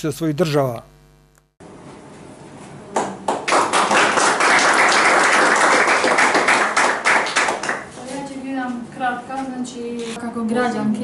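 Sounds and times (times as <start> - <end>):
audience applauding: 3.0 - 7.9.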